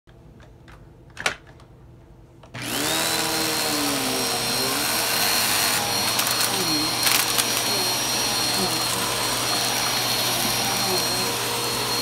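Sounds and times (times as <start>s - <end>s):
vacuum cleaner motor whine: 2.6s - 12.0s.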